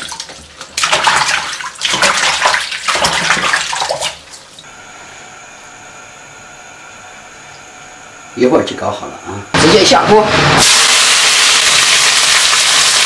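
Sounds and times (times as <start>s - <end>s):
splashing in a basin of water: 0.0s - 4.6s
oil heating hiss with high whine: 4.7s - 13.0s.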